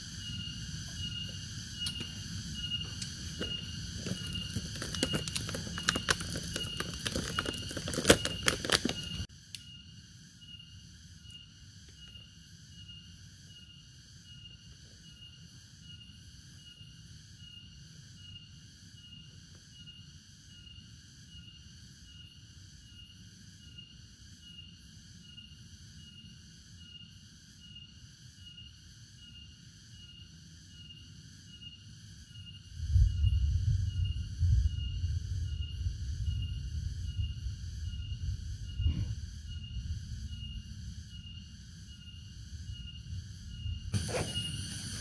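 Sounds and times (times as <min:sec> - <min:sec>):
insects chirping in pulses: 0:00.0 - 0:45.0
faint low rumble: 0:32.8 - 0:41.4.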